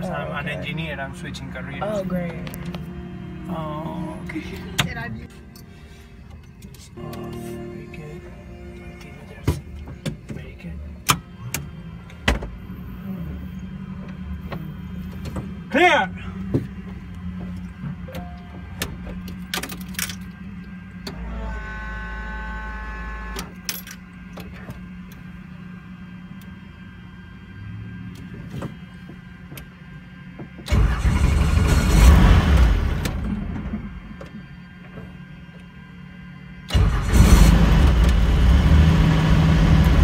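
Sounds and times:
steady tone: 0.0 - 16.4
helicopter engine low hum: 0.0 - 30.7.

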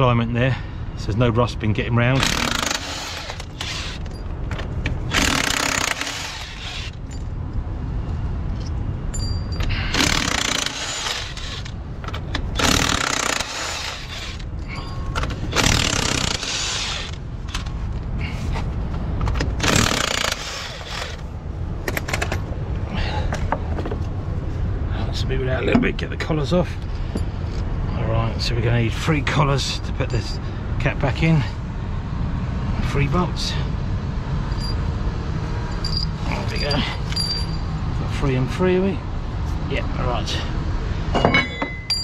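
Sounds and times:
steady low rumble: 0.0 - 42.0
hand tools mechanical noise: 2.0 - 7.3, 9.5 - 22.4.

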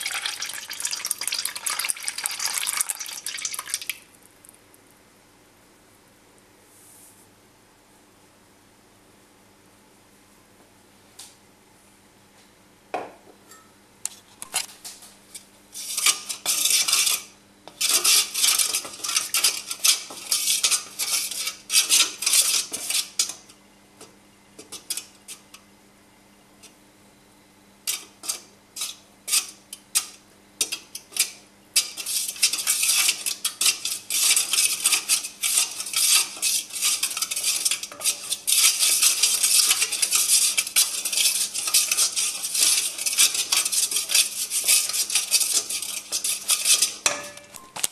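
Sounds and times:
wooden spoon stirring in metal pan: 0.0 - 3.9, 14.5 - 25.5, 27.9 - 47.6.

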